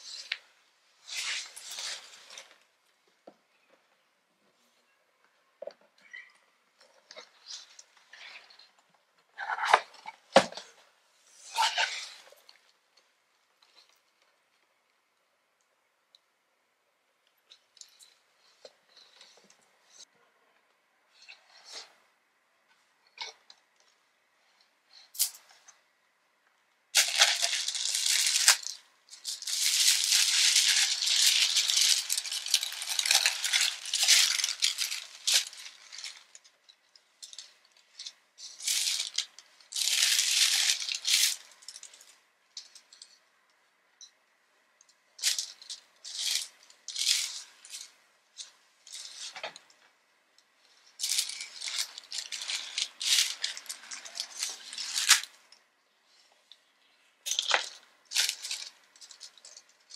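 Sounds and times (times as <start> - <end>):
tissue paper rustling: 1.0 - 2.6, 27.0 - 36.4, 37.3 - 42.0, 51.0 - 55.3.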